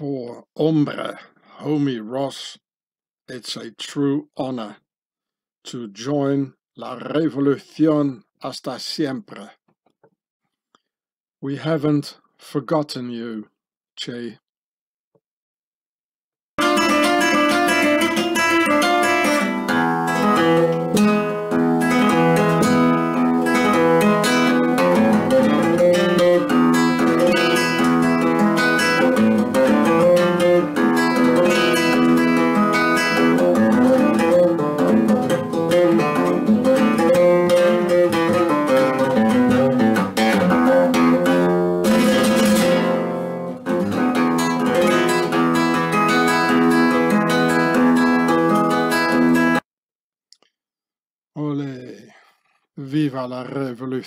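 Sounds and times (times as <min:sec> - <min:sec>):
classical guitar fingerpicking: 0:16.6 - 0:49.6.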